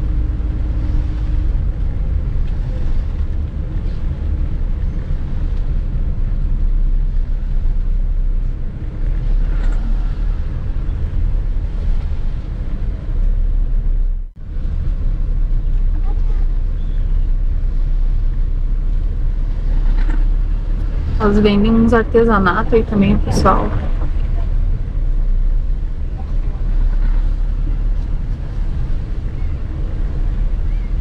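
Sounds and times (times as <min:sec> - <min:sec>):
car engine and road rumble: 0:00.0 - 0:31.0.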